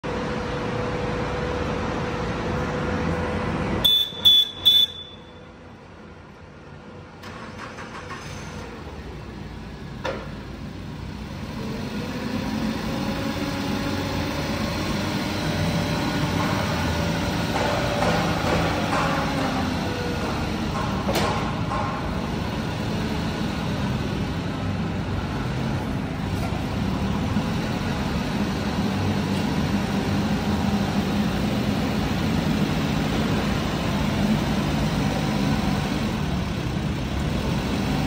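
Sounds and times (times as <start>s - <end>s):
forklift engine running: 0.0s - 38.0s
short high-pitched beeps: 3.9s - 5.4s.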